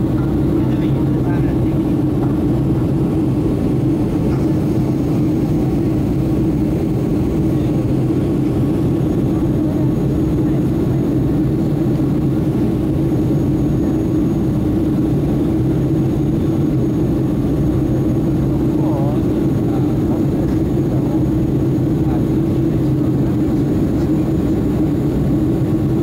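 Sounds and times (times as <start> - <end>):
jet airliner cabin drone: 0.0 - 26.0.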